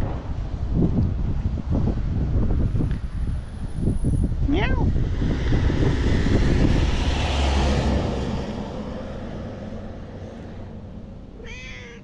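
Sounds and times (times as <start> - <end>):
vehicle passing: 4.8 - 12.0.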